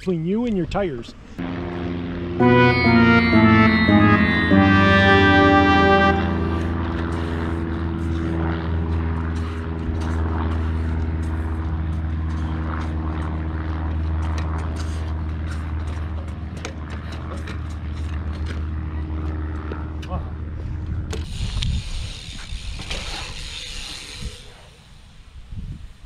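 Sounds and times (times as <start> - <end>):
low engine drone: 1.4 - 16.5.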